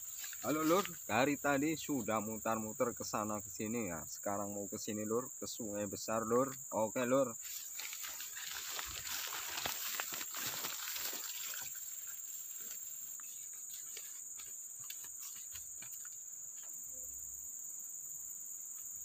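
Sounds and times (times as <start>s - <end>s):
grass rustling: 0.0s - 2.3s, 6.3s - 16.8s
insects buzzing: 0.0s - 19.0s
footsteps: 7.4s - 16.8s.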